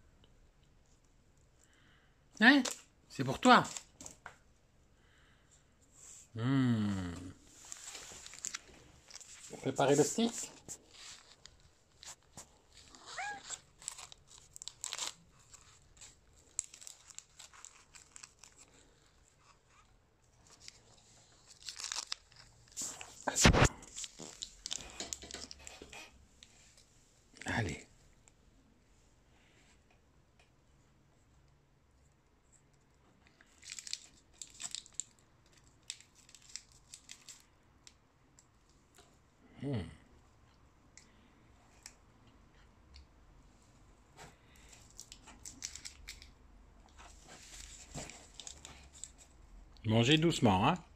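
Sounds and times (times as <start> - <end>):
plastic wrapper crinkling and tearing: 7.6 - 19.8, 20.4 - 25.8, 33.3 - 37.6, 44.7 - 46.4, 47.0 - 49.3
cat meowing: 12.9 - 13.6.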